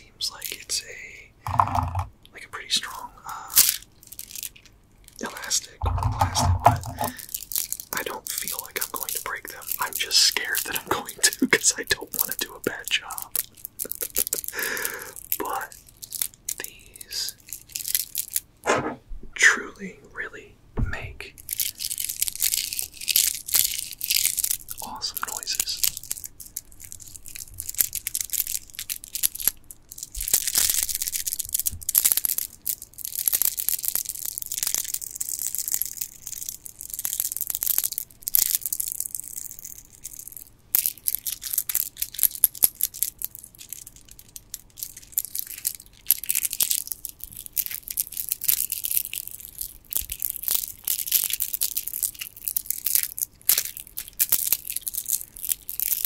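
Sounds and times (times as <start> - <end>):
stone beads clicking together: 1.4 - 2.1, 3.6 - 18.5, 21.4 - 56.0.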